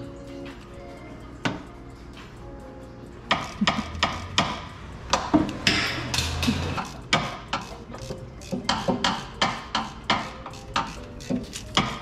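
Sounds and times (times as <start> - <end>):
hand tools clicking and knocking: 3.3 - 12.0.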